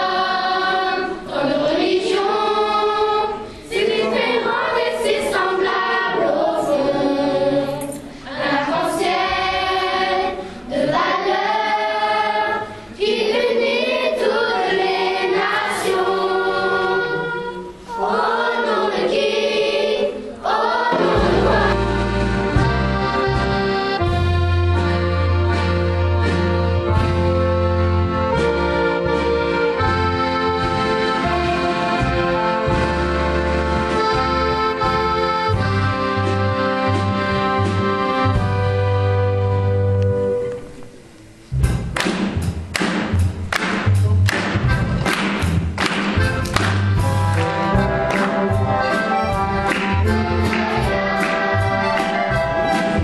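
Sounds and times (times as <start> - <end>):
children's choir singing: 0.0 - 24.2, 47.0 - 53.0
accordion orchestra chords: 0.0 - 53.0.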